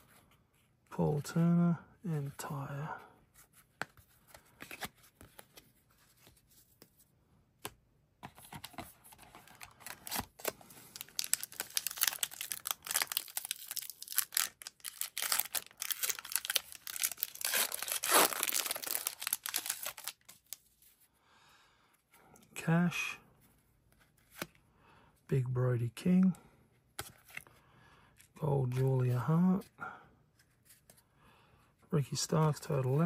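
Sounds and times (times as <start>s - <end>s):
card pack wrapper tearing: 9.7s - 20.6s.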